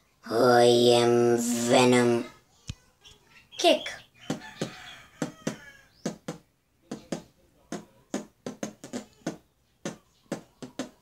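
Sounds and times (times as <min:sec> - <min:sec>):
boy beatboxing kick drum pops: 0:04.3 - 0:11.0.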